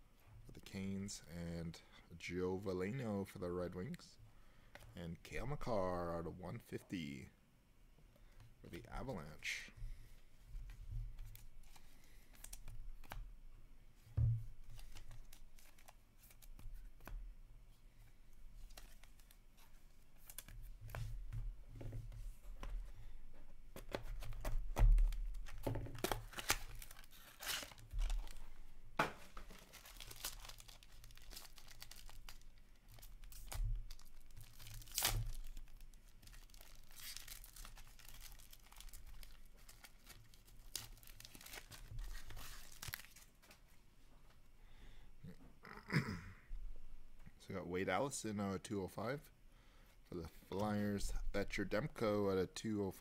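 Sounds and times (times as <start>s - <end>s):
foil pack ripping and crinkling: 25.4s - 28.4s, 29.5s - 43.2s.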